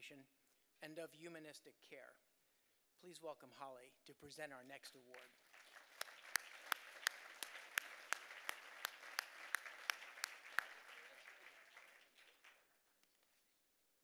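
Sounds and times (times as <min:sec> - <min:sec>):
sharp close claps: 0:05.1 - 0:12.7
audience applauding: 0:05.1 - 0:12.8.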